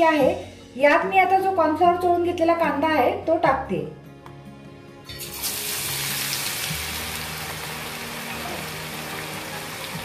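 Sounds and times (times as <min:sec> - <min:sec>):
onions sizzling in hot oil: 0:05.1 - 0:10.0
bubbling hiss of deep-frying: 0:05.2 - 0:10.0.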